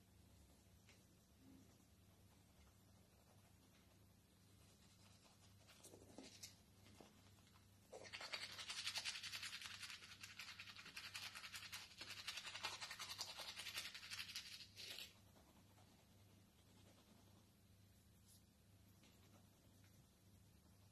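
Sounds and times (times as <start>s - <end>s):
toothbrush scrubbing teeth: 8.0s - 15.1s.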